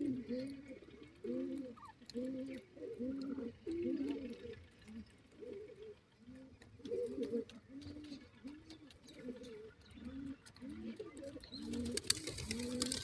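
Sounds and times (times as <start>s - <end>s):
francolins calling: 0.0s - 13.0s
faint clicks: 0.3s - 5.2s.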